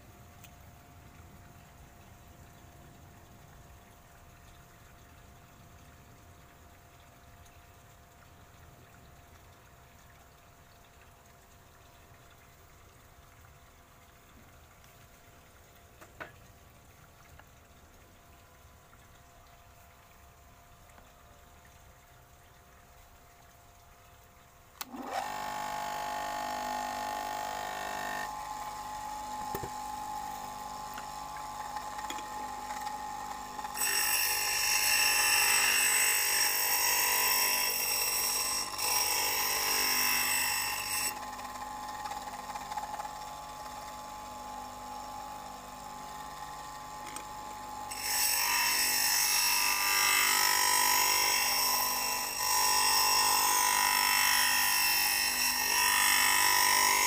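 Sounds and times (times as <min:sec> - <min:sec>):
blade grinding on grinding wheel: 0:24.8 - 0:57.0
electric grinder motor whining: 0:24.8 - 0:57.0.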